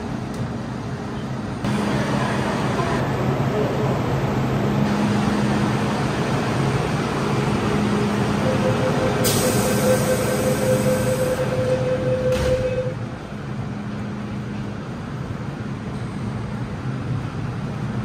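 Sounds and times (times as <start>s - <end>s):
electric train rumble and hum: 0.0s - 18.0s
train departing tone: 7.8s - 13.1s
train hiss: 9.2s - 11.0s.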